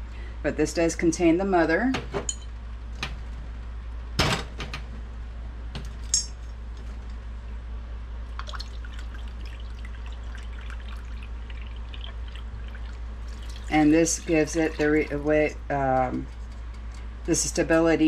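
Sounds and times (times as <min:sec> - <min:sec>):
steady low hum: 0:00.0 - 0:18.0
glassy clink: 0:06.1 - 0:06.4
liquid trickling into cup: 0:08.3 - 0:15.5.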